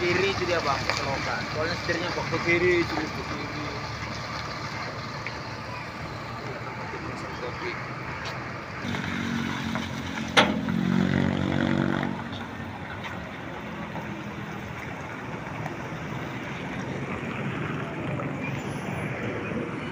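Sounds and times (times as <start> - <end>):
truck diesel engine running: 0.0 - 18.4
road noise: 0.0 - 19.9.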